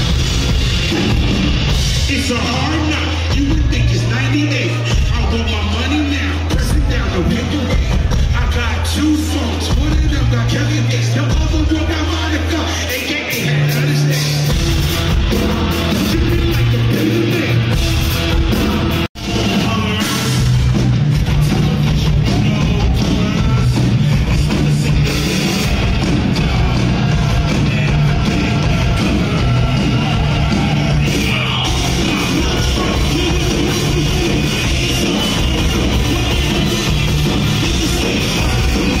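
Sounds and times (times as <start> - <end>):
live rock band: 0.0 - 39.0
loud drums: 0.0 - 39.0
shouted vocals: 21.5 - 39.0.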